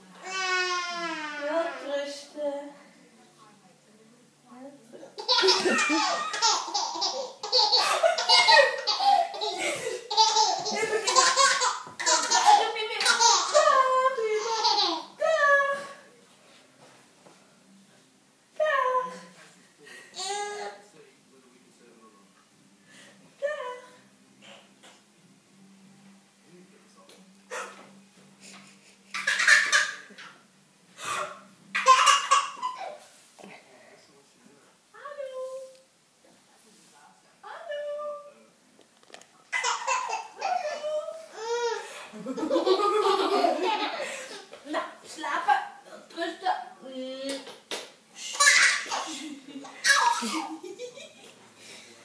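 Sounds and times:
baby laughing: 5.2s - 15.0s, 29.1s - 30.3s, 31.8s - 33.0s, 39.5s - 41.8s, 48.3s - 50.6s.

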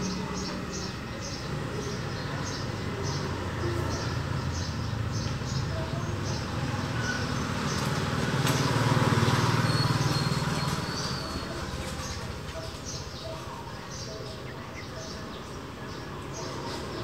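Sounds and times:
vehicle passing by: 0.0s - 12.5s
small birds chirping: 0.0s - 17.0s.

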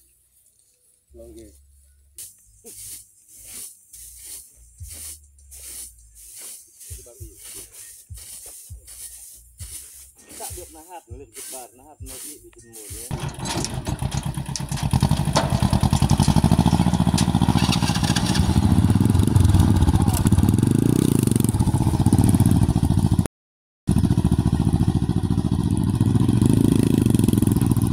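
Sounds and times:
tractor engine chugging: 10.6s - 20.7s, 23.9s - 27.9s
motorcycle engine running: 13.1s - 23.3s, 23.9s - 27.9s.

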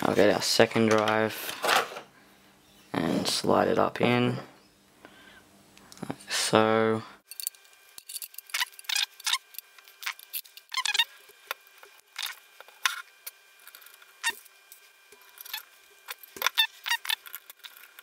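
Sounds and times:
faint steady hum: 0.0s - 18.0s
metallic clicks and scrapes: 7.3s - 11.1s, 11.8s - 18.0s.

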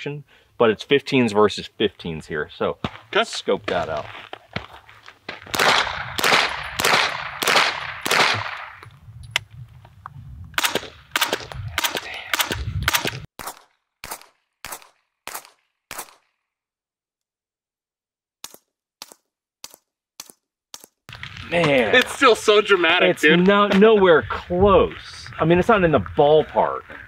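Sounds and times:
suppressed gunshots with loud crack: 5.5s - 8.8s, 10.6s - 16.2s.

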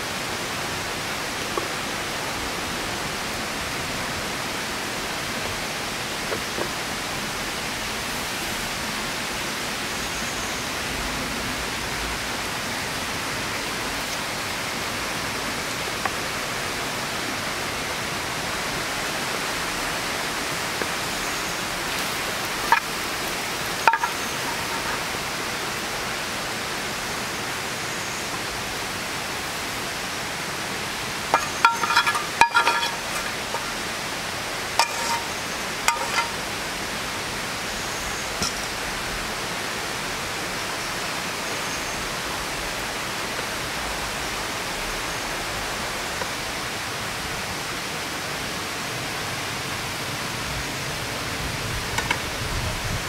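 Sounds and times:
river water flowing: 0.0s - 52.4s
cleaver clinking on a frying pan: 22.6s - 23.0s, 23.8s - 25.0s, 31.3s - 33.8s, 34.8s - 36.5s, 38.4s - 38.8s.

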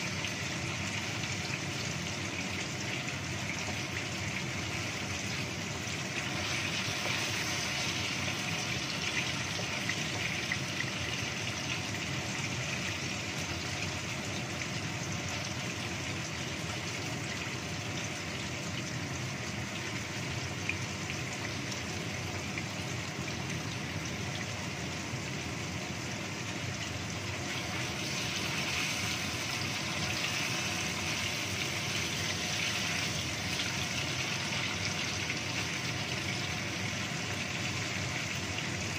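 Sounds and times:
tofu sizzling in hot oil: 0.0s - 38.9s.

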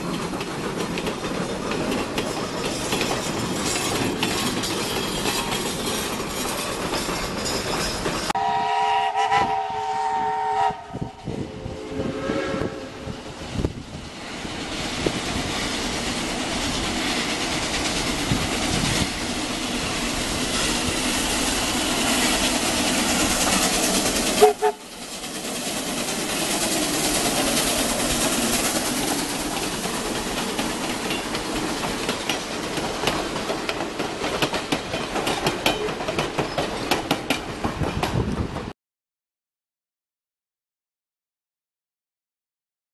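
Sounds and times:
wheels clicking over rail joints: 0.0s - 8.3s, 13.6s - 38.7s
steam locomotive passing: 0.0s - 38.7s.

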